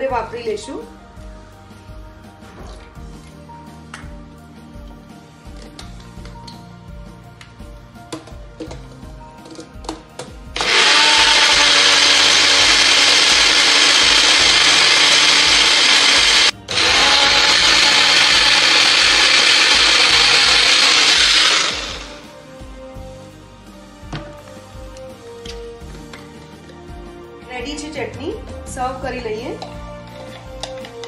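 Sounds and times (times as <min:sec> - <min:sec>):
mixer grinder running: 0:10.6 - 0:22.3.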